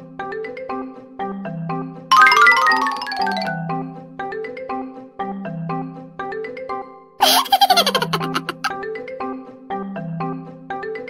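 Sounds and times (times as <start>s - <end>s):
bouncy mallet percussion tune: 2.1s - 4.0s.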